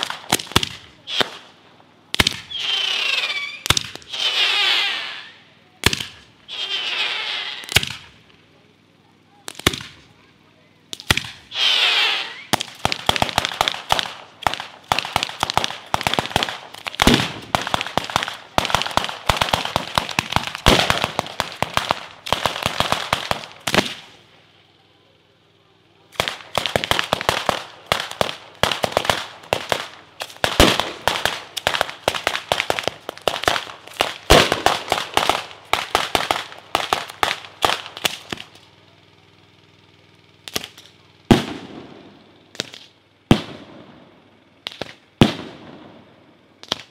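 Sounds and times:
firecrackers cracking in volleys: 0:00.0 - 0:24.7, 0:26.0 - 0:46.9.

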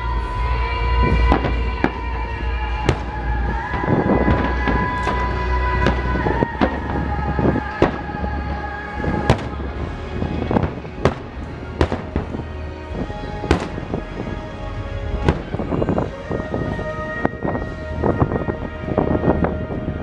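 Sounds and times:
low rumble: 0:00.0 - 0:20.0
fireworks bangs: 0:01.0 - 0:16.8.

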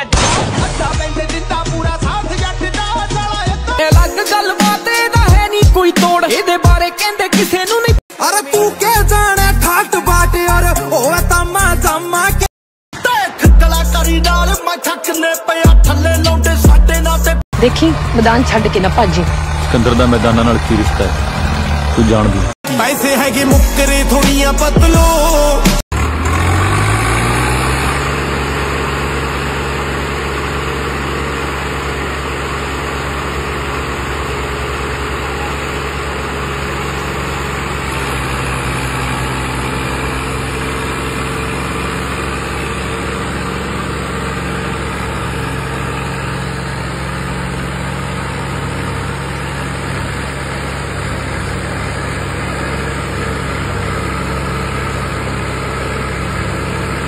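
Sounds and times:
diesel tractor engine under load: 0:15.9 - 0:57.0.

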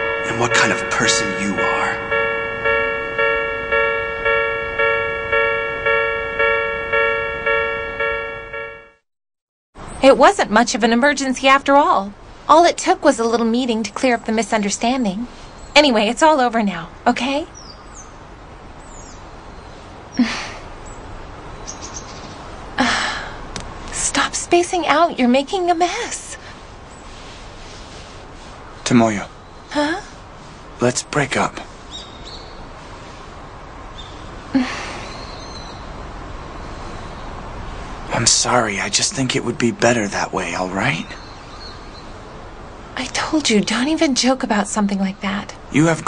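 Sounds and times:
faint outdoor ambience: 0:00.0 - 0:08.9, 0:09.8 - 0:46.0
level crossing warning bell: 0:00.0 - 0:09.0
bird chirps: 0:17.5 - 0:18.2, 0:20.8 - 0:22.4, 0:35.0 - 0:36.0.

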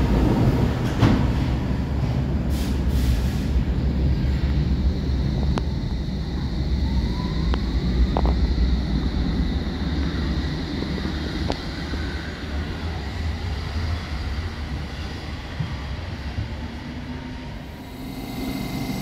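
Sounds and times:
train rumbling: 0:00.0 - 0:19.0
traction motor whine: 0:17.7 - 0:19.0.

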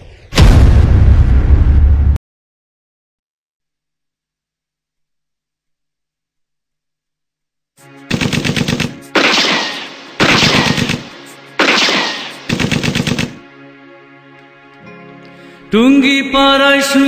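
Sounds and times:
heavy gunshot blasts: 0:08.1 - 0:13.4
machine-gun bursts: 0:08.1 - 0:13.4
low musical drone: 0:09.8 - 0:12.5, 0:13.3 - 0:16.3.

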